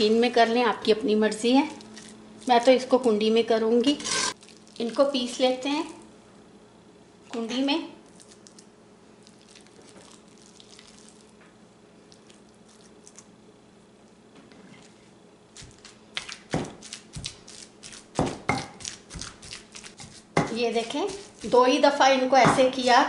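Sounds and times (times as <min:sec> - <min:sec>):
spoon scraping in stone mortar: 0:03.9 - 0:04.4, 0:18.8 - 0:21.6
wooden pestle pounding: 0:15.6 - 0:21.6, 0:22.4 - 0:23.0.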